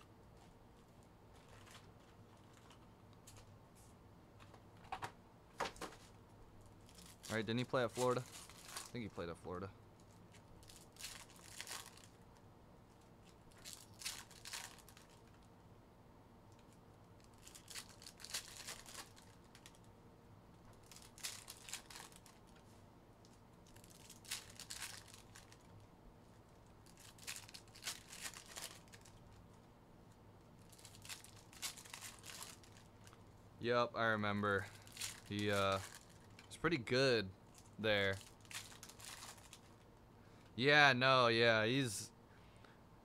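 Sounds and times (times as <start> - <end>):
low steady hum: 0.0 - 43.0
foil wrappers crinkling and tearing: 6.8 - 9.3, 10.0 - 12.2, 13.2 - 15.5, 17.2 - 19.9, 20.7 - 22.6, 23.2 - 25.9, 26.6 - 29.4, 30.6 - 33.2, 34.6 - 36.6, 37.5 - 39.8.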